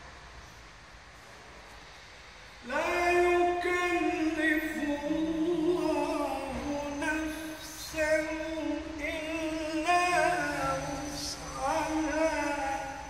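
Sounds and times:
man chanting melodically: 0:02.7 - 0:13.0.

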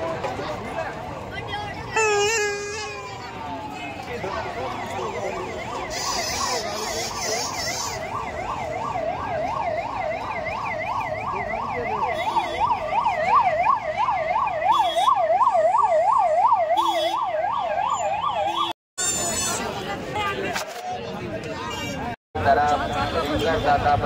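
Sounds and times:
electronic siren warbling: 0:04.6 - 0:18.7.

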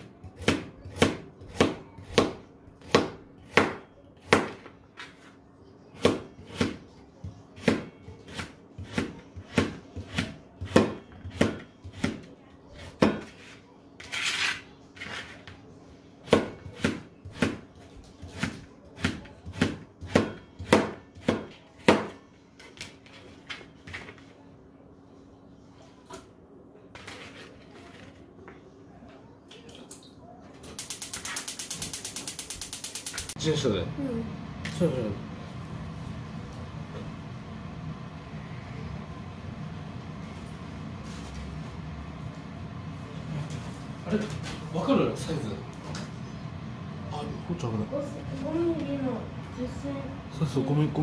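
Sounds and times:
knife chopping carrots on board: 0:00.2 - 0:04.7, 0:06.0 - 0:13.5, 0:16.2 - 0:22.2.

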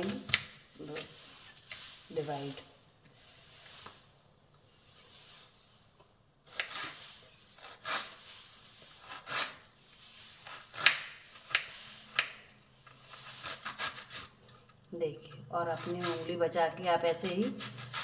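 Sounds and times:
knife slicing onion on wooden board: 0:06.5 - 0:14.3, 0:15.6 - 0:18.0.

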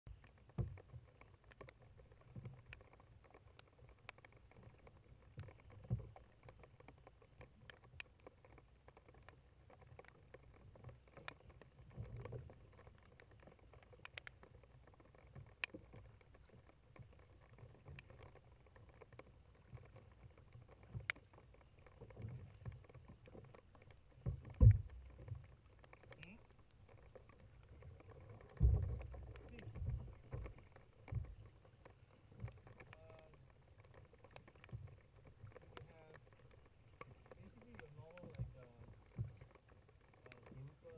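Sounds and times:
paddle strokes in water: 0:00.1 - 0:40.9
small clicks: 0:00.1 - 0:40.9
dull thumps: 0:24.3 - 0:25.1, 0:28.6 - 0:30.5.

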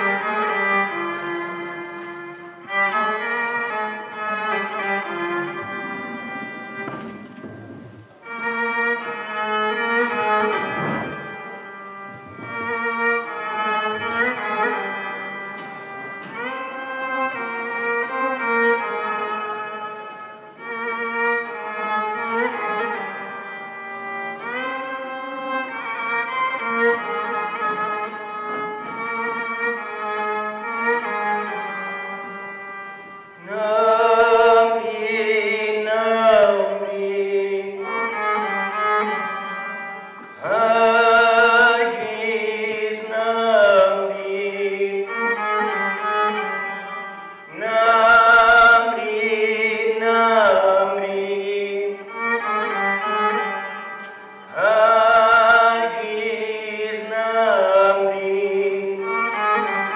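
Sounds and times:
violin held notes: 0:00.0 - 0:43.2
man singing with vibrato: 0:33.4 - 0:59.9.

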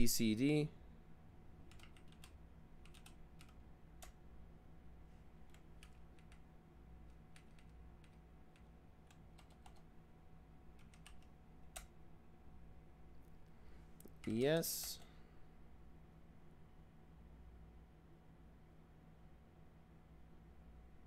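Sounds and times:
keyboard typing: 0:01.7 - 0:04.2, 0:05.4 - 0:09.9, 0:10.7 - 0:12.0.

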